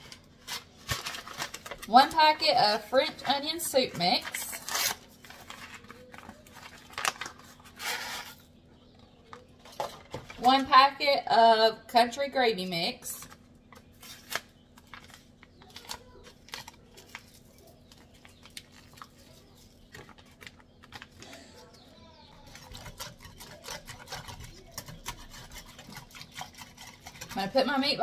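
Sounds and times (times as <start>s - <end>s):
whisk clicking against ceramic pot: 22.4s - 28.0s.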